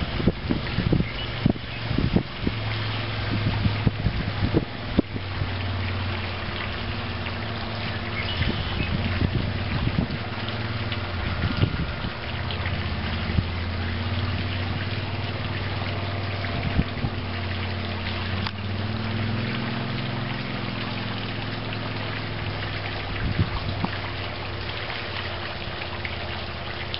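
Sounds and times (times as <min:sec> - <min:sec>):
boat motor running: 0:00.0 - 0:26.4
water lapping: 0:00.0 - 0:26.9.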